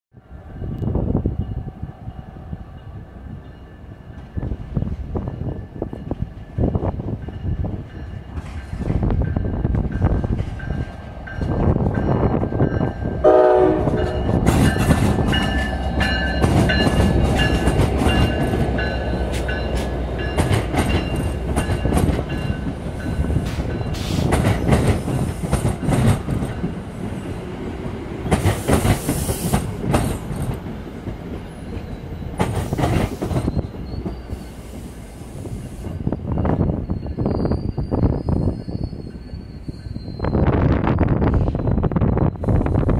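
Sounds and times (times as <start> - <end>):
diesel locomotive passing: 0.1 - 42.9
train horn blast: 13.2 - 14.4
wheels clicking over rail joints: 13.9 - 27.1.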